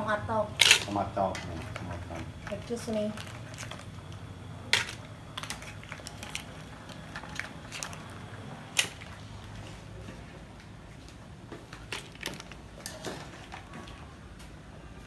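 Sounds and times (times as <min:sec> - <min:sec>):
low steady hum: 0:00.0 - 0:15.0
mussel shells clattering in pan: 0:00.5 - 0:09.2, 0:11.8 - 0:14.0.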